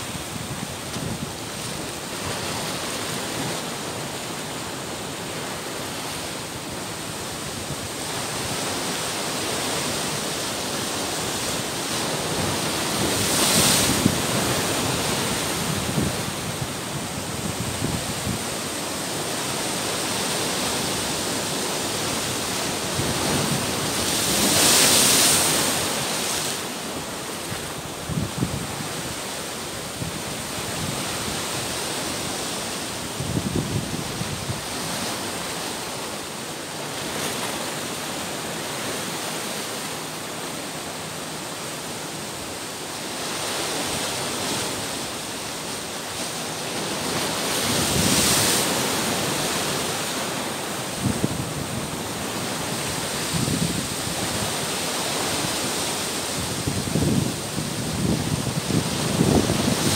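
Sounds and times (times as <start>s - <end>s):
surf breaking on rocks: 8.2s - 29.2s.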